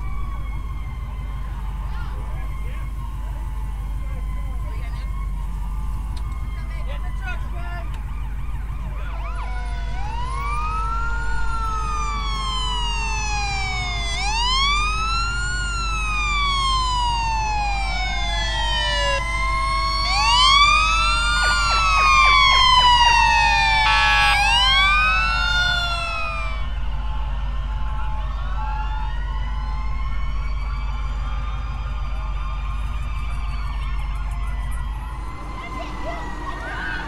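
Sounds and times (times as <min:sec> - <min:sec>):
fire truck sirens wailing: 0:00.0 - 0:37.0
horn blast: 0:21.2 - 0:24.6.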